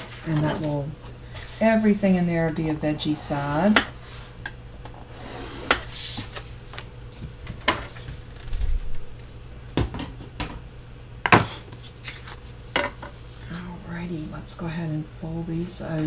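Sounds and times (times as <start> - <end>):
paper rustle: 11.8 - 12.7.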